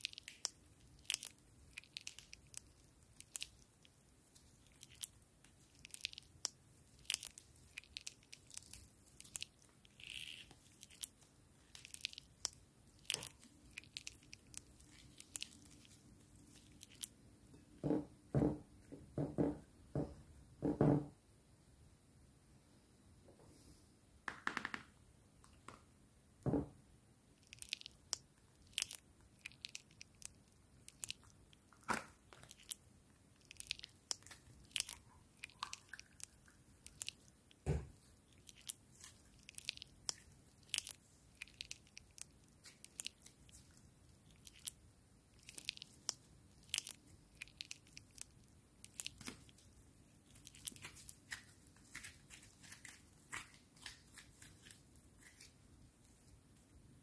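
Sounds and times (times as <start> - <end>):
slime crackling and popping: 0.0 - 17.1, 27.4 - 55.5.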